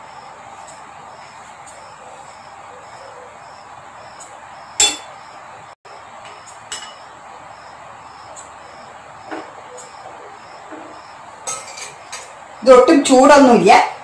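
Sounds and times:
metal spoon clinking on dishes: 4.8 - 5.1, 6.7 - 7.0, 11.4 - 12.3.

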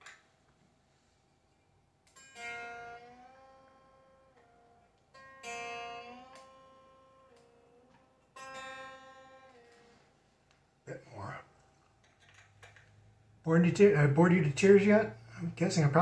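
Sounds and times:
electric guitar strings plucked: 2.1 - 9.9.

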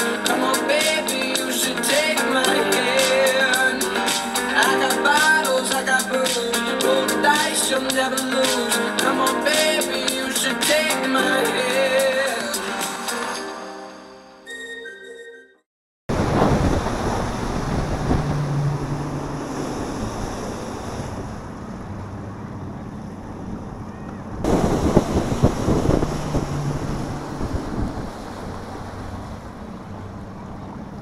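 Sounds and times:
rushing water: 0.0 - 13.4, 16.1 - 31.0
wind buffeting microphone: 16.1 - 22.4, 23.2 - 31.0
outboard engine drone: 16.1 - 31.0.

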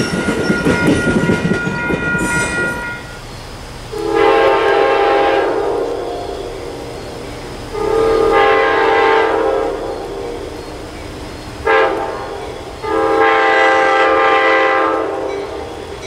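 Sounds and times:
locomotive air horn blasts: 3.9 - 10.8, 11.6 - 15.8.

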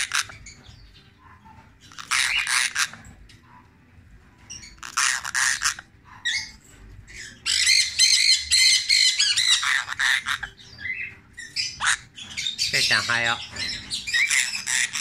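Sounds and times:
parrot squawking harshly: 0.0 - 0.5, 1.8 - 3.0, 4.6 - 15.0
parrot chattering mimicked speech: 1.9 - 3.0, 4.8 - 6.4, 7.5 - 10.5, 11.8 - 15.0.

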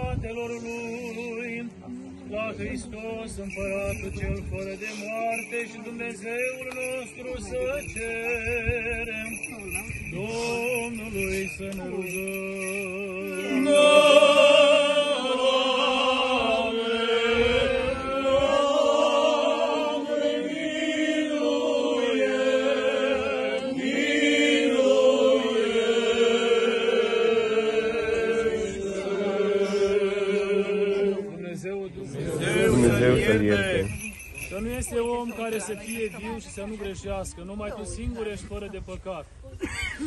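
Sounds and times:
clergy chanting a slow hymn: 10.0 - 34.2.

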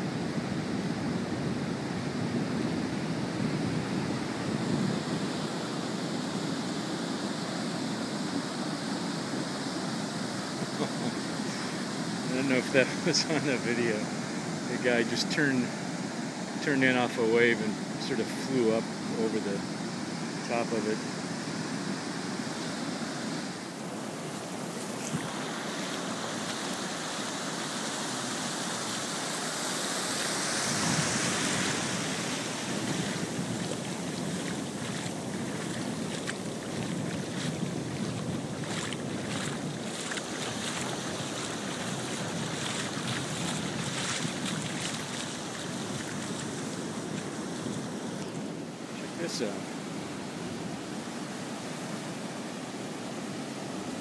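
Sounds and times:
wind buffeting microphone: 0.0 - 5.7, 30.6 - 48.7
ocean surf breaking: 0.0 - 54.0.

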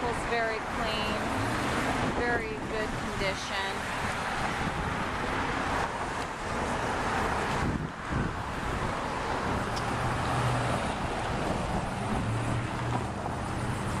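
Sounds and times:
traffic: 0.0 - 14.0
wind: 0.0 - 14.0.

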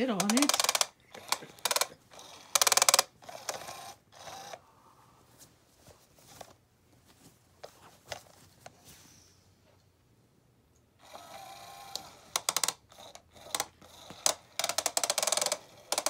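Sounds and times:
toy wand clattering clicks: 0.0 - 1.9, 12.4 - 16.0.

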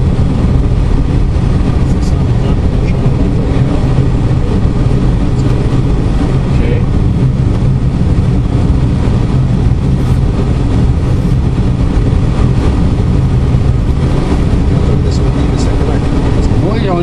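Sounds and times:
low aircraft drone: 0.0 - 17.0
rushing airflow: 0.0 - 17.0.

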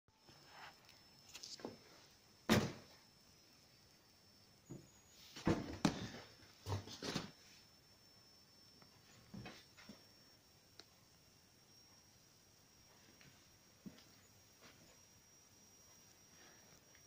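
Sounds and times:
knocks and thuds: 2.5 - 2.9.

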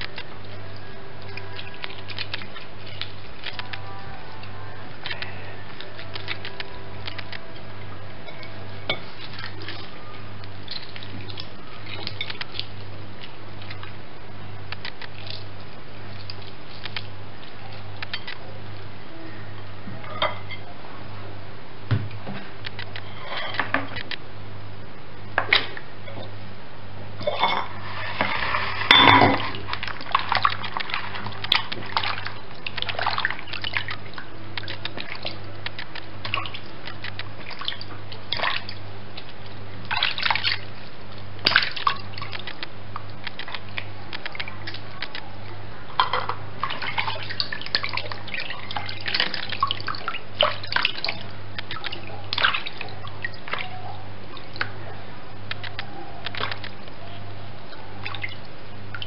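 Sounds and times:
water splashing: 0.0 - 18.5, 27.2 - 56.9, 57.6 - 59.0
plate and basin clinking: 20.0 - 20.6, 27.2 - 29.6.

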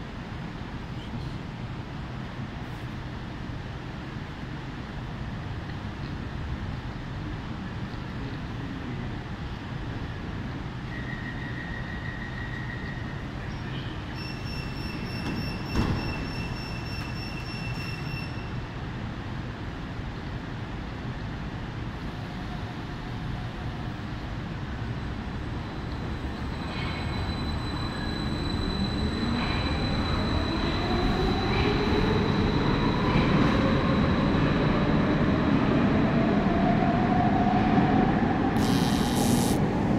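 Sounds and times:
train doors shutting: 11.0 - 18.6, 38.4 - 39.9
warning tone: 38.6 - 39.6.

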